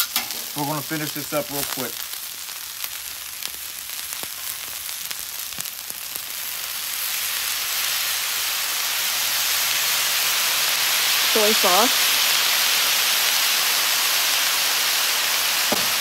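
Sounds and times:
rice sizzling on a griddle: 0.0 - 16.0.

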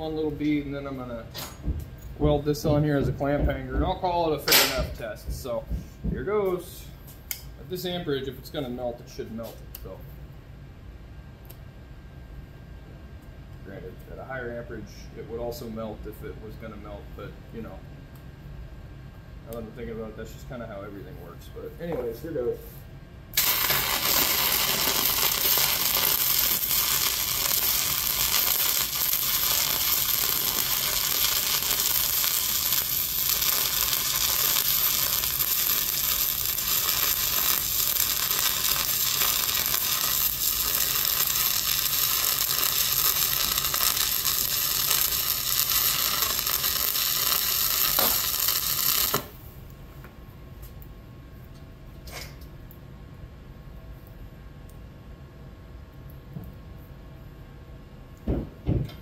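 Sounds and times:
welding arc burning: 23.3 - 49.4.

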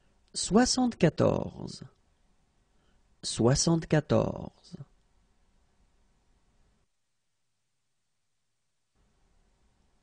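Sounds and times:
faint recording hiss: 0.0 - 10.0
person speaking: 0.3 - 2.0, 3.2 - 5.0.

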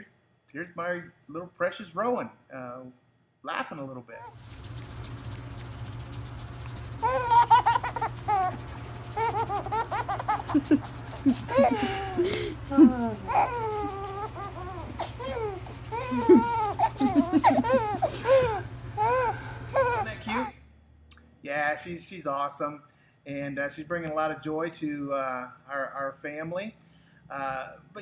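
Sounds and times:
baby laughing: 6.8 - 20.5.

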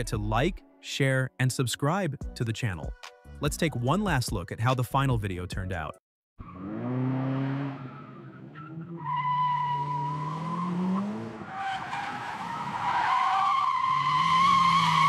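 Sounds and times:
truck engine revving: 6.4 - 15.0.

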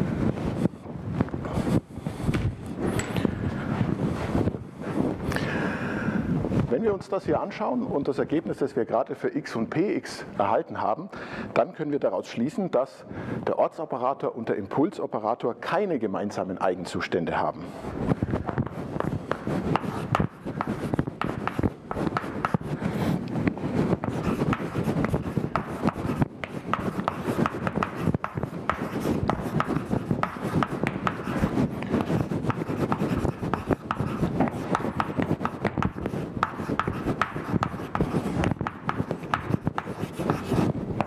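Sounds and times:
chalk scratching on blackboard: 18.6 - 40.8.

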